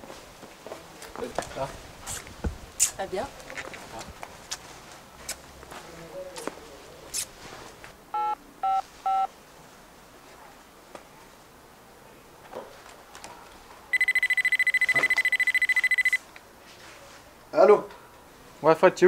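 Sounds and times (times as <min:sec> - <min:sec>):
mobile phone ringing: 0:08.2 - 0:09.3, 0:13.9 - 0:16.2
phone keypad beeps: 0:08.2 - 0:09.3, 0:13.9 - 0:16.2.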